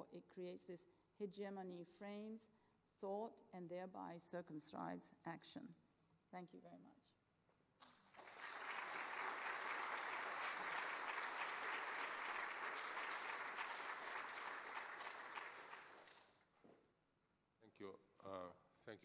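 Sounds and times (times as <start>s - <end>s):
audience applauding: 8.0s - 16.4s.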